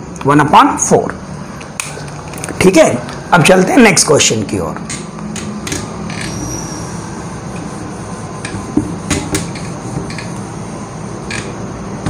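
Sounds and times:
steady low hum: 0:00.0 - 0:12.0
duster rubbing on whiteboard: 0:06.3 - 0:10.8.

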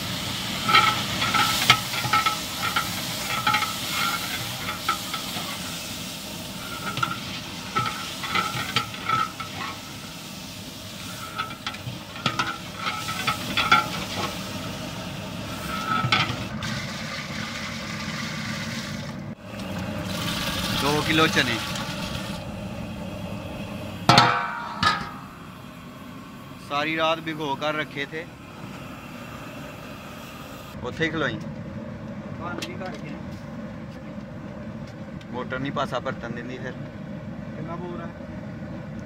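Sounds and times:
sizzling in hot oil: 0:00.0 - 0:24.6
metal ladle scraping pot: 0:00.5 - 0:05.8, 0:06.5 - 0:10.0, 0:10.9 - 0:14.4, 0:15.5 - 0:16.8.

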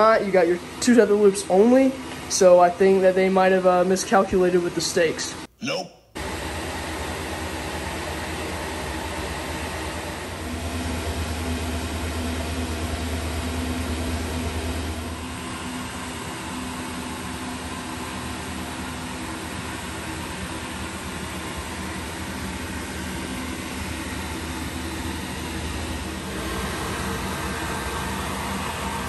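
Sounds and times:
blower fans humming: 0:00.0 - 0:29.0.

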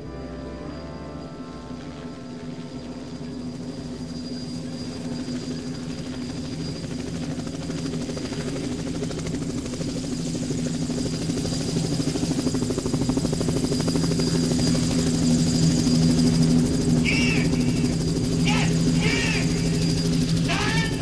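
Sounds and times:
low fluttering drone: 0:00.0 - 0:05.6
faint high whine: 0:00.0 - 0:07.6, 0:13.8 - 0:21.0.

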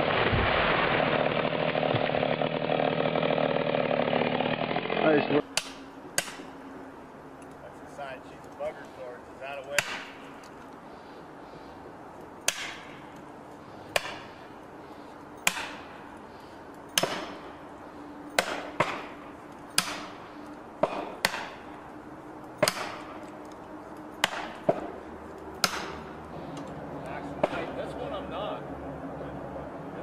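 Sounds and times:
hammer striking metal wedges: 0:09.8 - 0:10.2, 0:12.4 - 0:13.0, 0:13.9 - 0:14.3, 0:15.4 - 0:15.9, 0:19.7 - 0:20.2, 0:25.6 - 0:26.0.

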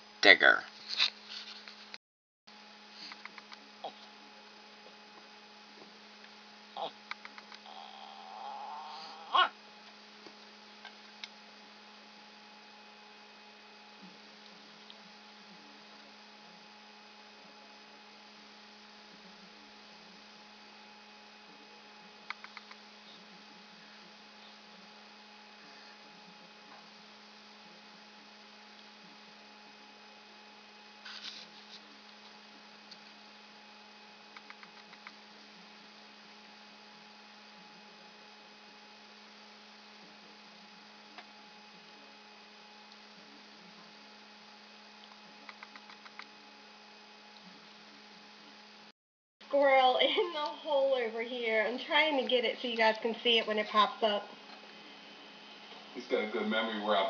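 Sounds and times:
electrical hum: 0:00.0 - 0:57.0.

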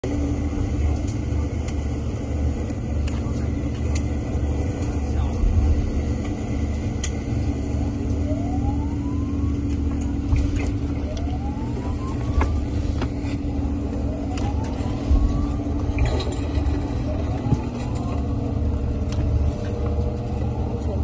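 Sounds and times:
boat engine rumble: 0:00.0 - 0:21.0
whooping siren: 0:07.6 - 0:18.9.

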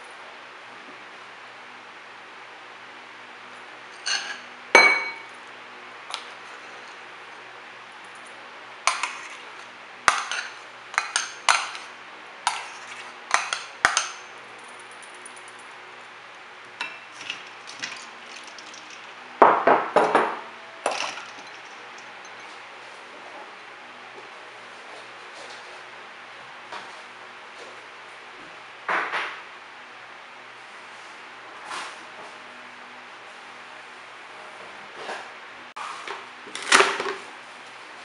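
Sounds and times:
utensil clinking on ceramic bowls: 0:04.0 - 0:05.3, 0:08.9 - 0:09.3, 0:10.1 - 0:11.9, 0:12.5 - 0:15.6, 0:20.8 - 0:22.6
bowl knocking in steel bowl: 0:04.8 - 0:05.3.

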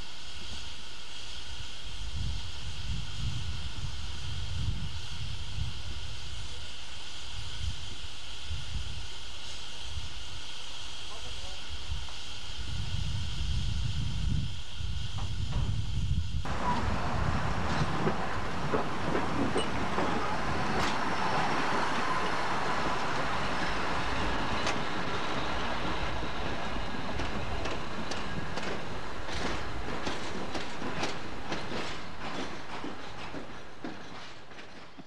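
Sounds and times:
steam locomotive running past: 0:00.0 - 0:35.0
wheels clicking over rail joints: 0:16.5 - 0:35.0.

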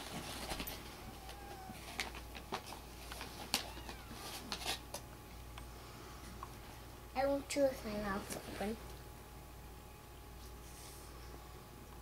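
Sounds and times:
kittens mewing: 0:00.9 - 0:02.0, 0:03.6 - 0:04.5.

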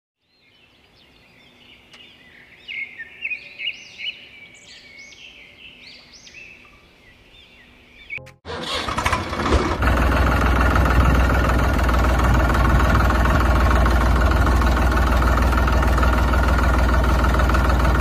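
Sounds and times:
birds chirping and singing: 0:00.2 - 0:08.3.

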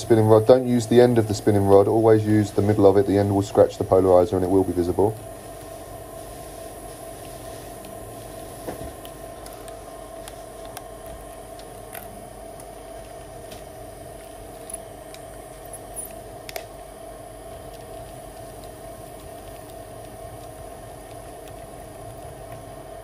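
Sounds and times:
small clicks: 0:16.0 - 0:16.7.

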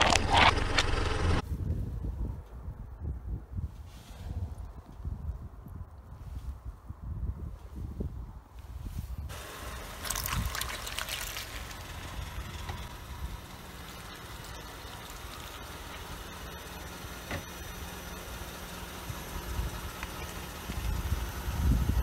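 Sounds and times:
tyre squashing jelly: 0:10.0 - 0:11.8.

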